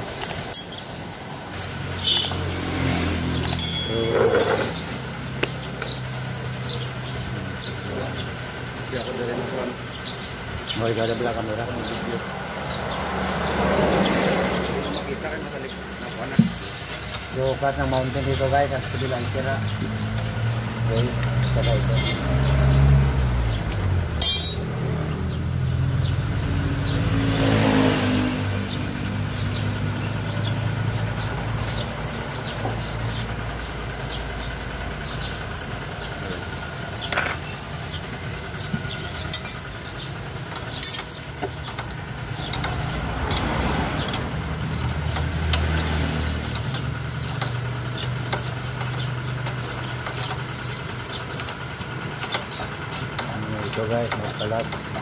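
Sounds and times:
vehicles passing by: 0:00.0 - 0:55.0
sharp clicks: 0:40.5 - 0:55.0.

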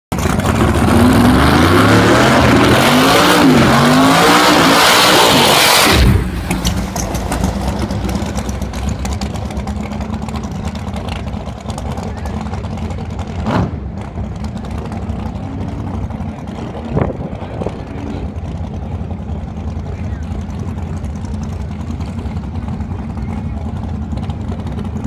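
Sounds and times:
drag car engine revving: 0:00.1 - 0:25.0
engine idling with pops: 0:06.2 - 0:15.4, 0:19.8 - 0:25.0.

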